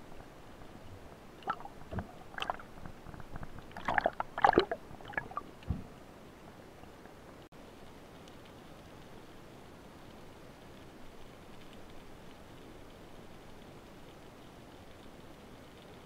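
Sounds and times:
underwater knocks and clicks: 1.4 - 6.0.

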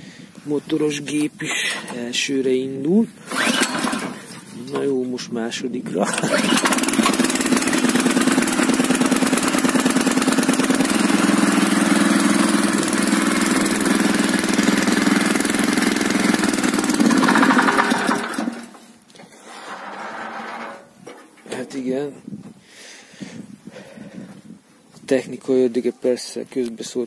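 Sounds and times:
tiller engine running: 3.2 - 4.4, 6.0 - 20.9.

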